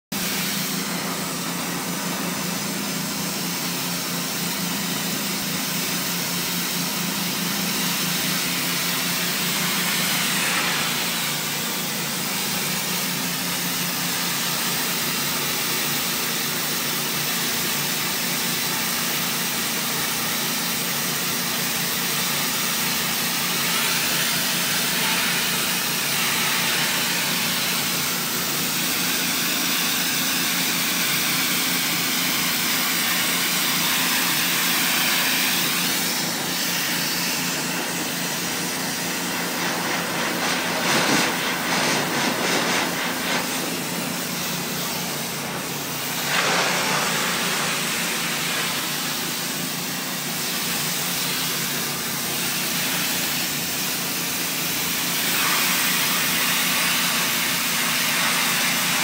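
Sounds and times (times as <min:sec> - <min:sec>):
pressure washer jet hissing: 0:00.2 - 0:59.0.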